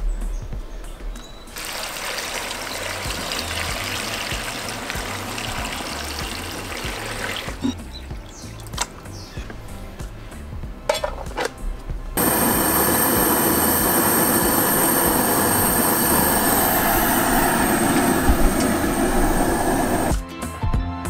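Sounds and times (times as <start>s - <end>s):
faint high whine: 12.2s - 20.1s
gas burner roaring: 12.2s - 20.2s.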